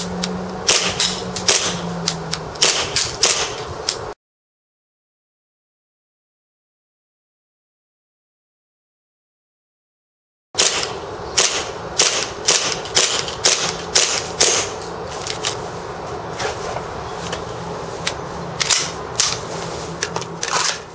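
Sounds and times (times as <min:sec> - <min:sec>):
airsoft pistol shots: 0:00.7 - 0:01.8, 0:02.6 - 0:03.6, 0:10.6 - 0:14.8.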